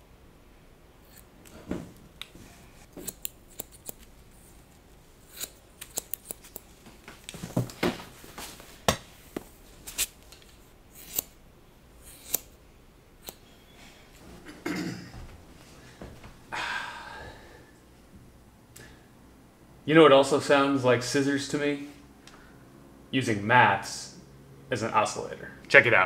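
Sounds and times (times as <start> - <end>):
scissors snipping: 1.0 - 1.6, 2.2 - 4.1, 5.2 - 6.8, 9.9 - 11.4, 12.0 - 12.6, 13.2 - 13.5.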